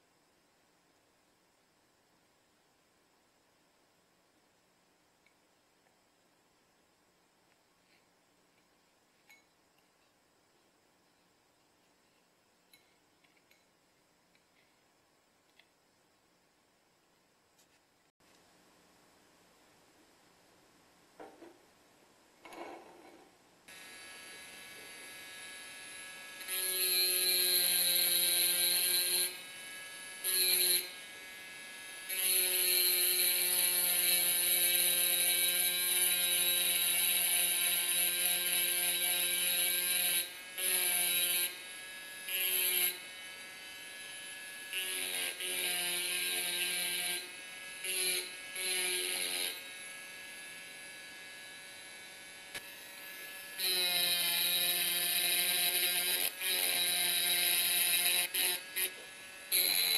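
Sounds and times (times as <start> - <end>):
engraving drill whining on glass: 23.7 - 59.9.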